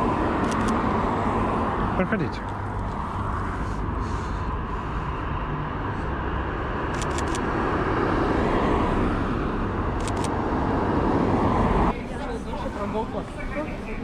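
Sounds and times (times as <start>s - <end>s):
street traffic: 0.0s - 14.0s
camera shutter clicks: 0.4s - 0.8s, 6.9s - 7.4s, 10.0s - 10.4s.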